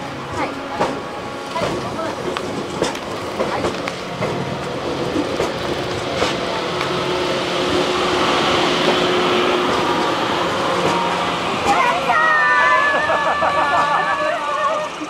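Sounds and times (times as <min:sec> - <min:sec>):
train rolling rumble: 0:00.0 - 0:15.0.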